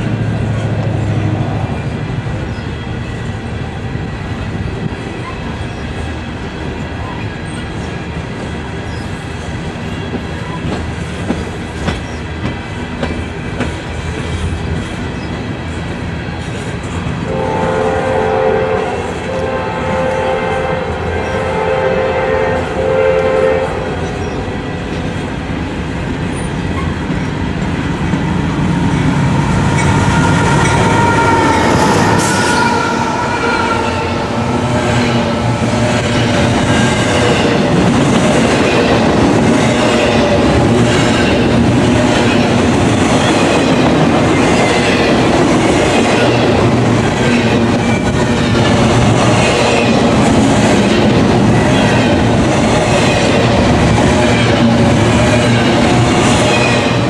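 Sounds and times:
freight trains passing: 0:00.0 - 0:57.0
steady high tones: 0:28.2 - 0:37.8.

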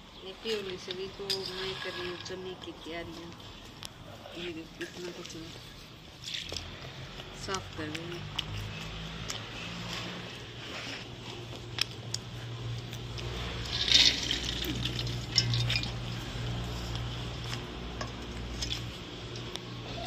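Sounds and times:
chickpeas rattling into metal pot: 0:13.4 - 0:16.1
steel plate and pots clinking: 0:13.6 - 0:16.3.

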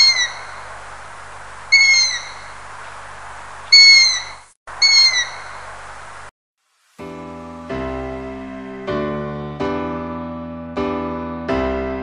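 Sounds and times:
owl calling: 0:00.0 - 0:00.7, 0:01.6 - 0:03.0, 0:03.6 - 0:05.7
field recording hiss: 0:00.0 - 0:09.3.

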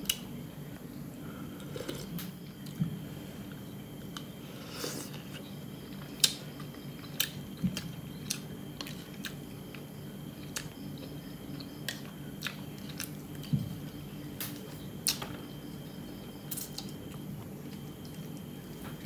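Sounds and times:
steady low hum: 0:00.0 - 0:19.0
chewing: 0:05.0 - 0:13.5, 0:16.5 - 0:19.0.

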